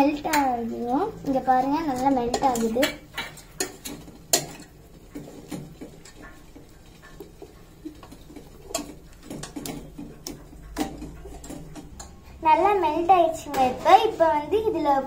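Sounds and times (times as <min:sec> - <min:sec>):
whisk scraping steel bowl: 0:01.4 - 0:12.2.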